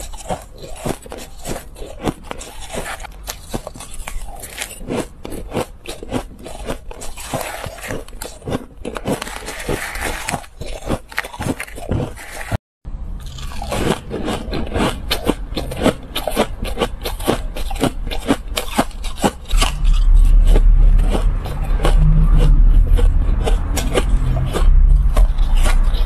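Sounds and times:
ice crunching while chewed: 0.0s - 12.6s, 13.2s - 26.0s
heavy low rumble: 12.9s - 18.0s, 19.4s - 26.0s.

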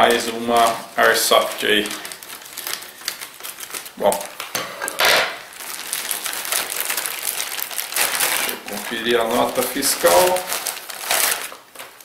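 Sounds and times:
plastic and paper crinkling: 0.0s - 12.0s.

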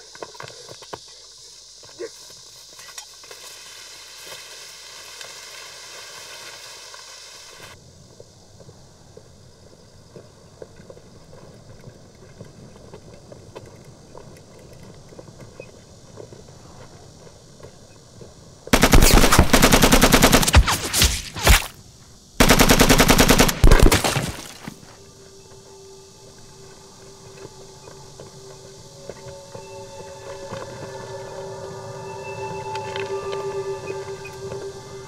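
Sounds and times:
automatic gunfire bursts: 18.8s - 21.6s, 22.4s - 24.6s.

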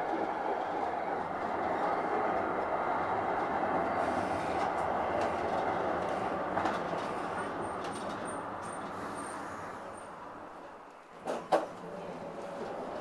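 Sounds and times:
tram rolling on rails: 0.0s - 13.0s.

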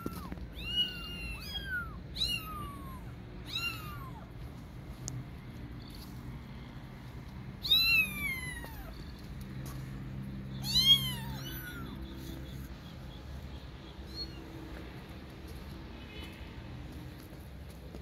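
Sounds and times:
kitten meowing: 0.0s - 4.3s, 7.6s - 9.0s, 10.6s - 12.0s.

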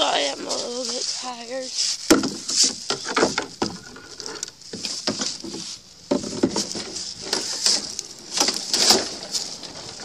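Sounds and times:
dry sticks and leaves crackling: 0.0s - 10.0s.

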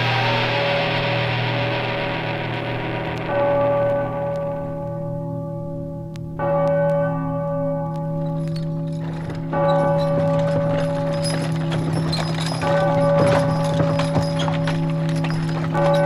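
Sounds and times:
steady low drone: 0.0s - 5.2s
ringing bell-like tone: 8.1s - 16.0s.

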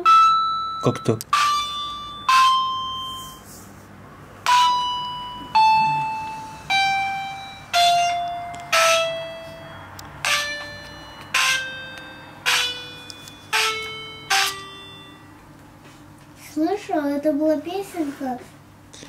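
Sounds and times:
toy piano notes: 0.0s - 3.4s, 4.4s - 15.4s.

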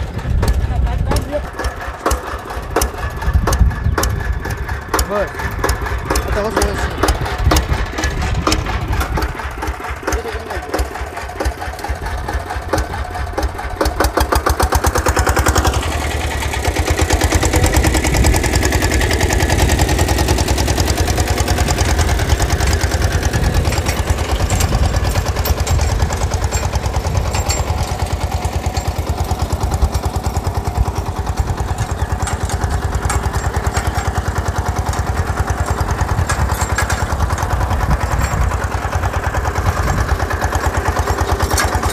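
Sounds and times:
tractor engine running: 0.0s - 41.9s.

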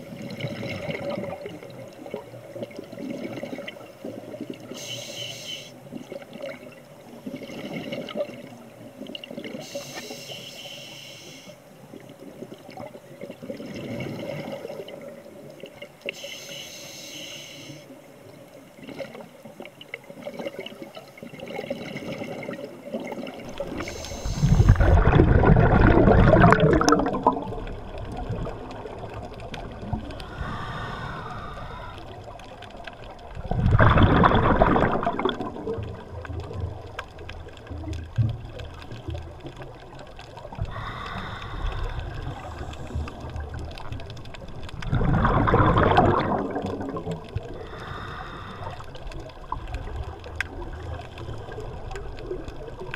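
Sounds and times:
watery background noise: 0.0s - 52.9s
exhaled breath bubbling underwater: 12.7s - 15.2s, 21.4s - 32.4s, 33.4s - 36.0s, 40.4s - 52.8s.

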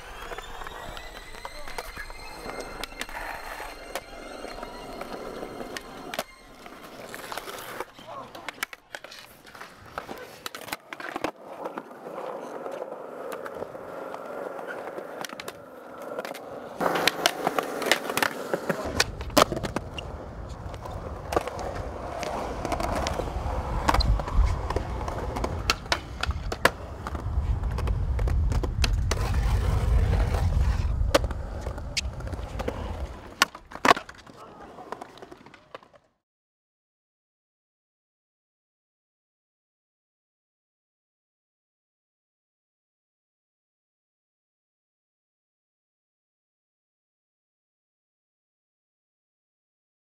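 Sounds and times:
skateboard clacks: 0.0s - 36.1s
skateboard wheels rolling on concrete: 0.0s - 36.2s.

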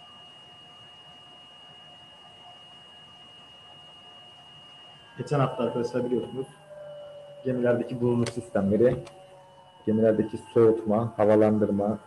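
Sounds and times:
electronic whine: 0.0s - 12.0s.

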